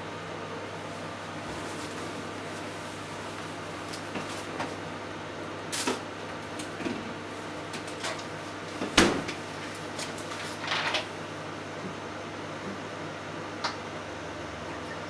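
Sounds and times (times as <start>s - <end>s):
microwave oven humming: 0.0s - 15.0s.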